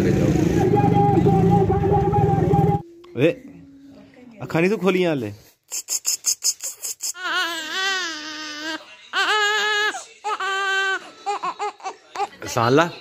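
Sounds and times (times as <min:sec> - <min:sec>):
newborn baby crying: 0:06.1 - 0:12.4.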